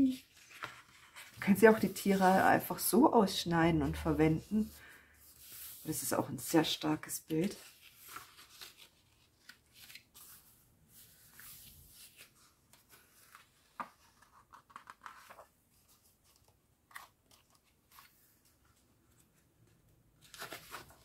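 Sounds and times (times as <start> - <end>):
calendar pages turning: 0.1 - 3.0, 7.3 - 19.3, 20.2 - 21.0.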